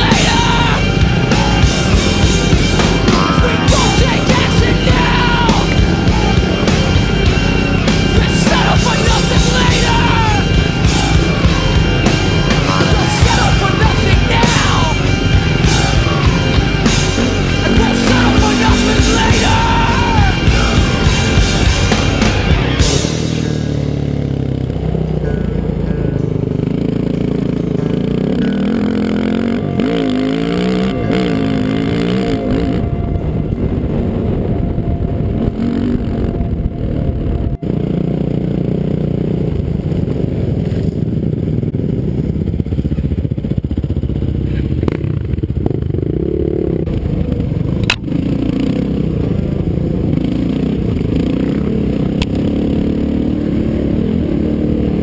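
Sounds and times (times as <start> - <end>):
off-road engine revving: 0.0 - 55.0
wind noise: 32.0 - 37.8.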